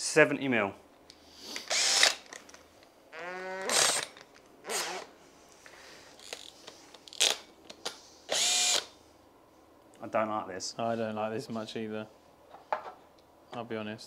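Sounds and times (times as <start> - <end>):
cordless drill whirring: 1.7 - 2.3, 3.2 - 4.1, 4.7 - 5.1, 8.3 - 8.9.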